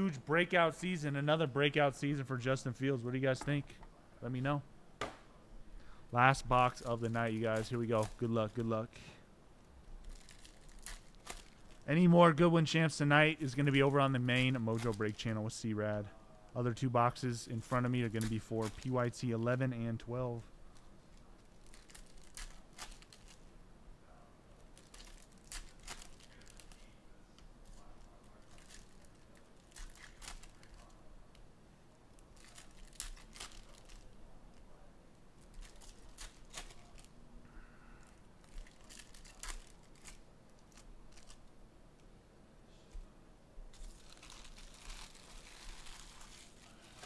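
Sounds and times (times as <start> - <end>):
wrappers tearing and crinkling: 6.5 - 8.8, 10.0 - 11.9, 13.4 - 15.4, 17.6 - 19.6, 20.7 - 23.4, 24.6 - 27.0, 27.6 - 31.0, 32.1 - 34.6, 35.4 - 37.2, 38.0 - 41.5, 43.7 - 47.0.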